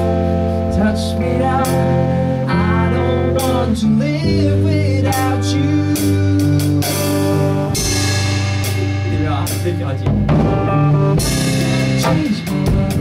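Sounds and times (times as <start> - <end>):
man singing: 0.0 - 8.2
bass guitar low notes: 0.0 - 13.0
electric guitar: 0.0 - 13.0.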